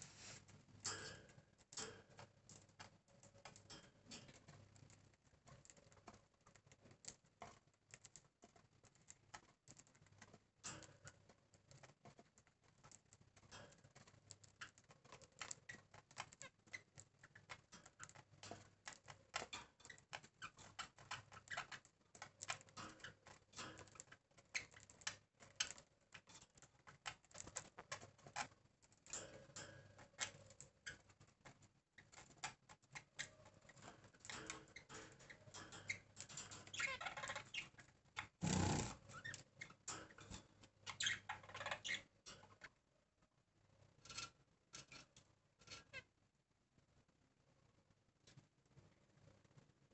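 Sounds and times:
faint ticking and clicking: 0.5s - 42.7s
small birds chirping: 12.7s - 29.2s, 30.0s - 42.8s.

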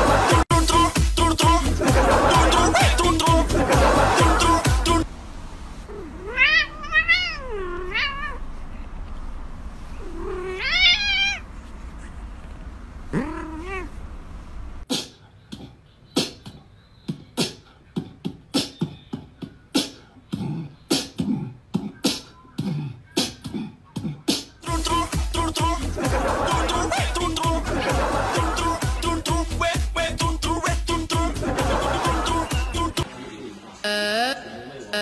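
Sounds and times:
cat meowing: 5.9s - 8.4s, 10.0s - 11.5s, 13.1s - 14.0s.

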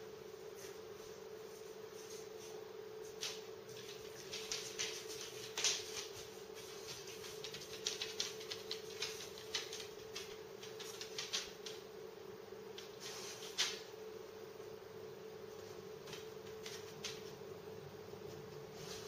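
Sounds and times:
low appliance hum: 0.0s - 19.0s
dog claws clicking on hard floor: 3.1s - 11.9s, 16.0s - 17.4s.

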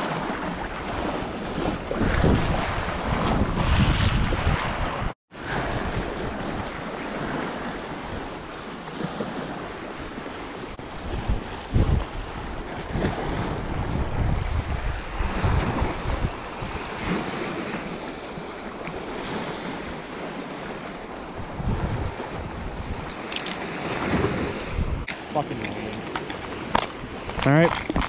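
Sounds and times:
waves splashing against rocks: 0.0s - 21.2s, 21.8s - 28.0s
wind buffeting microphone: 0.0s - 28.0s.

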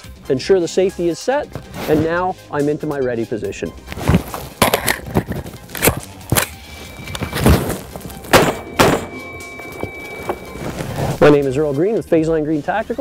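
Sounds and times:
music: 0.0s - 13.0s
rifle shots: 8.3s - 9.2s.

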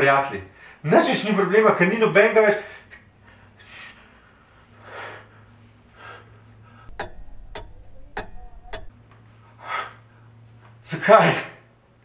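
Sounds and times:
wall clock ticking: 6.9s - 8.9s.

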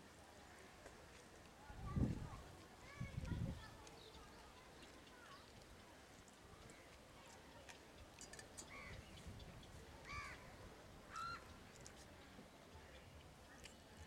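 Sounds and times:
crow cawing faintly: 10.1s - 10.5s.

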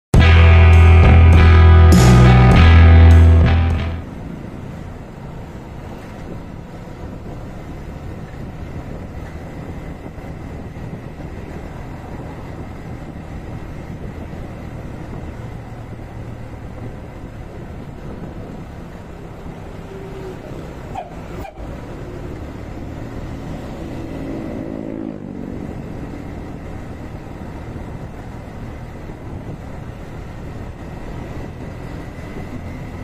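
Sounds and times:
intro music: 0.1s - 4.1s
road and wind noise: 0.1s - 33.0s
motorcycle engine running: 0.2s - 4.4s.

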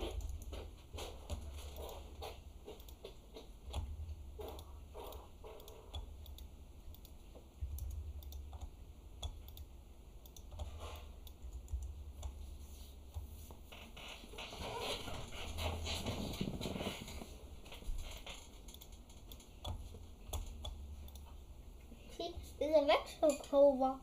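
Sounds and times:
steady low hum: 0.0s - 24.0s
computer keyboard clicking: 2.8s - 12.4s, 18.4s - 21.3s.

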